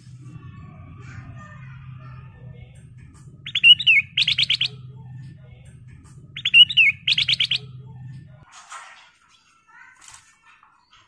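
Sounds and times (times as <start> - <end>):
low steady hum: 0.0 - 8.4
bird singing whistled phrase: 3.5 - 4.8, 6.4 - 7.7.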